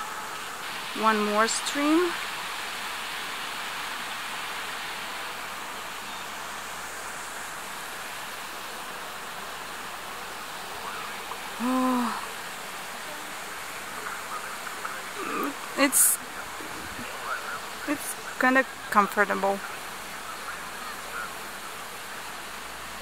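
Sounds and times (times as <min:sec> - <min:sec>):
stream rushing: 0:00.0 - 0:23.0
person humming: 0:11.6 - 0:12.3, 0:15.2 - 0:16.1.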